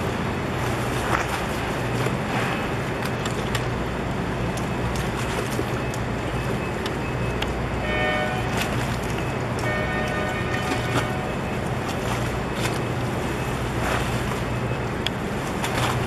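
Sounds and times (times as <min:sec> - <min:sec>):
steady low hum: 0:00.0 - 0:16.0
water noise: 0:00.0 - 0:16.0
wind: 0:00.0 - 0:16.0
brief pitched tone: 0:09.6 - 0:11.8.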